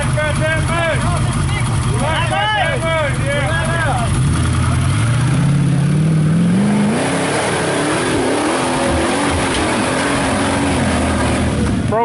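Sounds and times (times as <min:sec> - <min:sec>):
buggy engine revving hard: 0:00.0 - 0:12.0.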